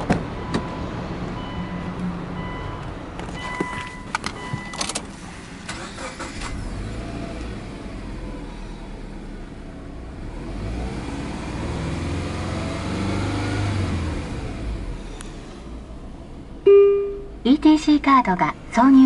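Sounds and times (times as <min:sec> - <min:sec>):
car engine starting and idling: 0:02.4 - 0:19.0
electronic chime beeps: 0:16.7 - 0:17.4.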